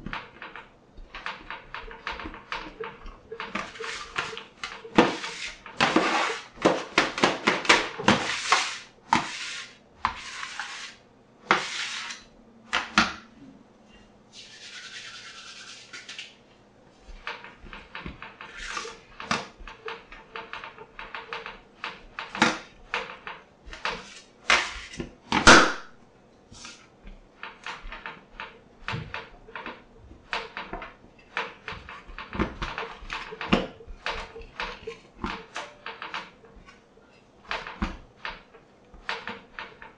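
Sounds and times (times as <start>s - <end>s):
dough kneaded on steel worktop: 0.0s - 39.9s
bench scraper scraping steel: 3.3s - 6.6s, 8.0s - 12.3s, 18.4s - 19.1s, 23.7s - 25.0s.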